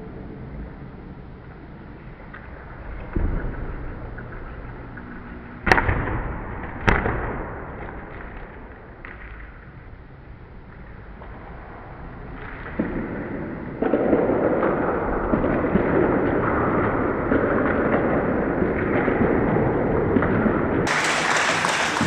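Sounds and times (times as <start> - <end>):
steel wheel rolling on floor: 13.0 - 22.0.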